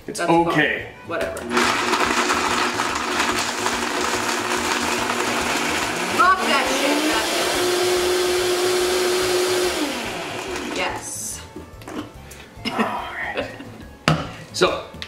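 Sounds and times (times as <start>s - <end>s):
blender crushing ice: 1.4s - 11.1s.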